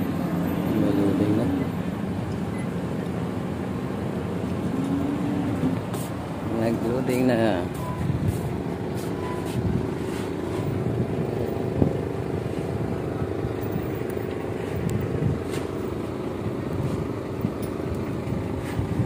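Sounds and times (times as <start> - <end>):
diesel machinery rumbling: 0.0 - 19.0.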